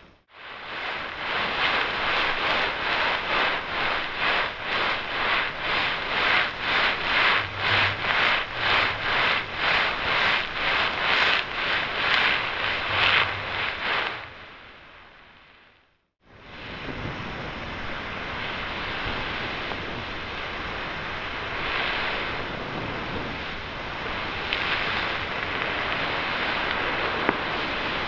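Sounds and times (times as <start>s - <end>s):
rhythmic hissing scraping: 0.0s - 14.4s
low hum: 0.0s - 15.3s.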